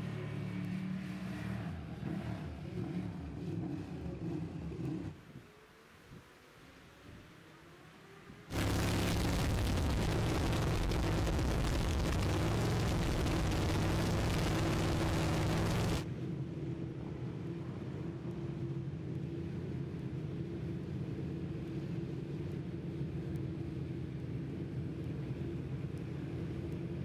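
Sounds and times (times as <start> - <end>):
engine drone: 7.9 - 27.0
heavy rushing noise: 8.5 - 16.0.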